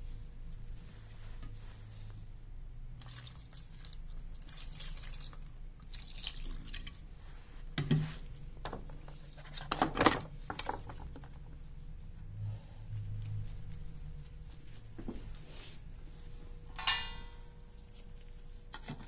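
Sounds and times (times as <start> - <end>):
liquid sloshing and dripping in tray: 3.0 - 7.1.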